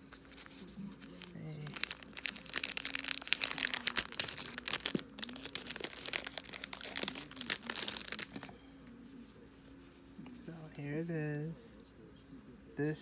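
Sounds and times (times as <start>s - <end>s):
plastic bag crinkling: 0.3s - 8.5s.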